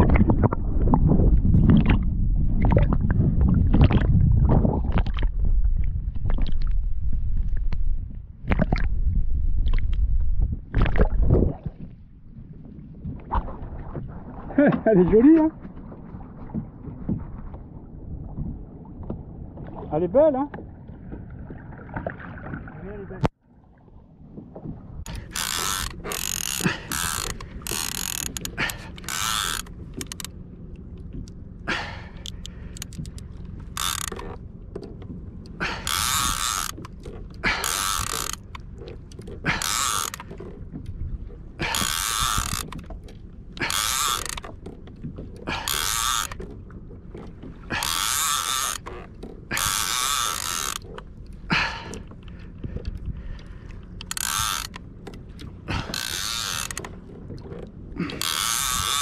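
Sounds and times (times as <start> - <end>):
fishing reel whirring: 25.1 - 30.3, 32.2 - 34.4, 35.6 - 38.6, 39.2 - 40.4, 41.6 - 42.8, 43.6 - 44.5, 45.5 - 46.5, 47.7 - 51.0, 54.0 - 54.8, 55.7 - 56.9, 58.2 - 59.0.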